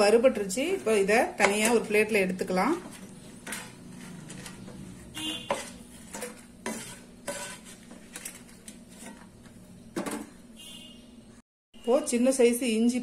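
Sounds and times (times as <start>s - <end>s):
spatula scraping and knocking in pan: 0.4s - 10.4s.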